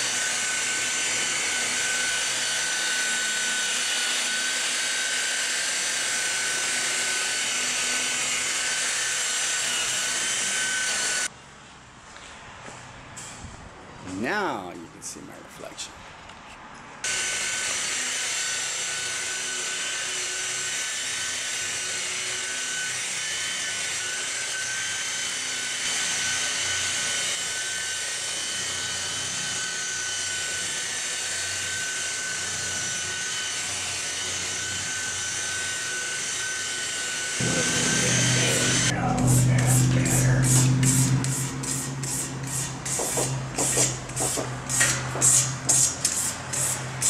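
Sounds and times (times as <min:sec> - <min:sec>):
electric polisher motor whine: 0:00.0 - 0:11.3, 0:17.0 - 0:43.8
music: 0:37.4 - 0:40.6
buffing pad hissing on paint: 0:40.1 - 0:46.8.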